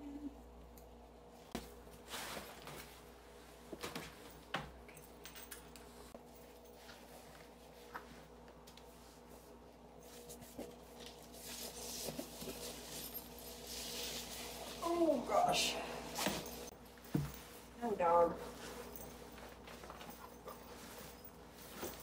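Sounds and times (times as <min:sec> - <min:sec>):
low room hum: 0:00.0 - 0:22.0
soft rustling: 0:05.8 - 0:22.0.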